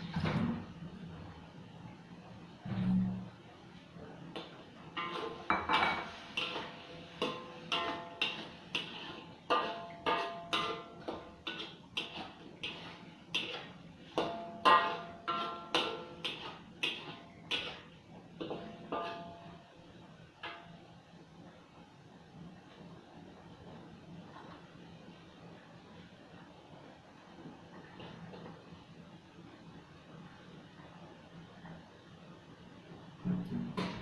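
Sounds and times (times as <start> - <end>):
metal spatula scraping wok: 2.6 - 3.3, 4.4 - 19.7.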